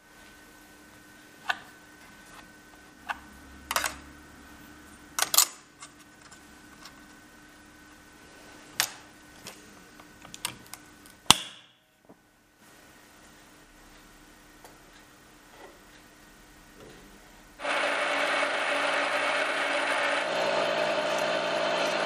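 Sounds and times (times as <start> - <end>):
faint steady hum: 0.0 - 17.6.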